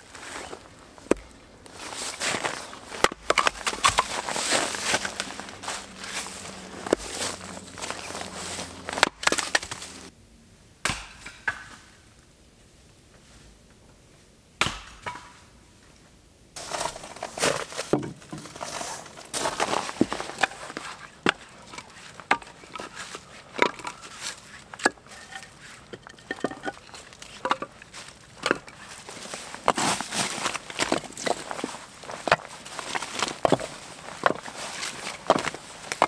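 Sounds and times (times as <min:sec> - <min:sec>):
wooden knocks of firewood logs: 0:01.1 - 0:01.3, 0:02.9 - 0:05.3, 0:16.6 - 0:18.7, 0:19.4 - 0:29.0, 0:29.6 - 0:36.0.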